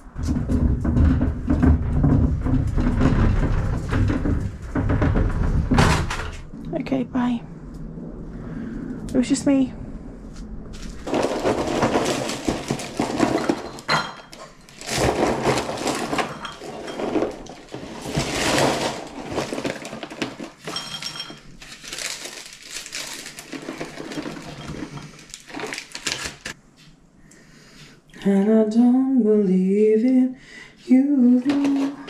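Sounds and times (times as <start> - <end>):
objects rustling and clattering: 0.0 - 6.6, 10.3 - 27.0, 31.4 - 32.0.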